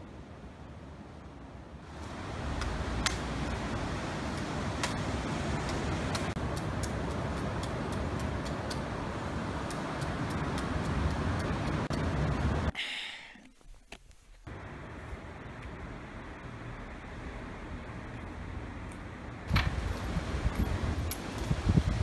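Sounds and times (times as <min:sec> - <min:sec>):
low rumbling noise: 0:08.8 - 0:12.8, 0:14.5 - 0:22.0.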